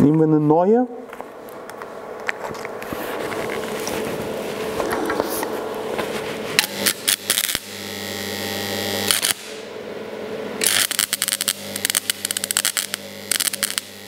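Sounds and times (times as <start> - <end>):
welder mains hum: 1.0 - 14.0
welding arc crackling: 3.4 - 14.0.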